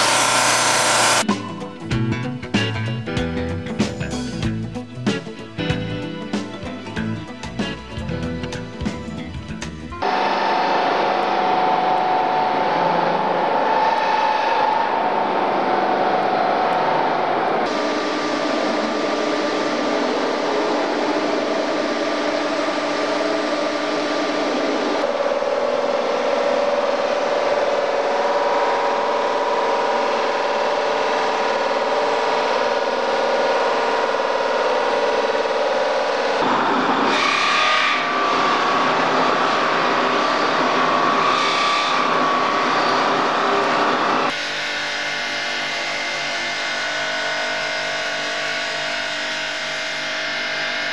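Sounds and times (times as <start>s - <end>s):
buffing wheels rubbing metal tube: 0.0s - 1.2s
machine whine: 0.0s - 1.4s, 10.0s - 50.9s.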